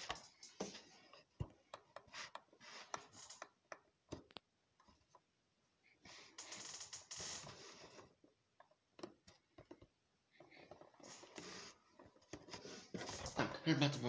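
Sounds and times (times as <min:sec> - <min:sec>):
paper and cardboard rustling: 0:11.0 - 0:13.5.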